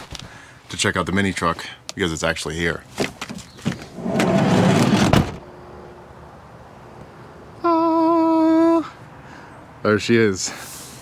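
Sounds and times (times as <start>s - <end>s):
sliding door rolling on track: 4.0s - 5.4s
door shutting with thud: 4.1s - 5.4s.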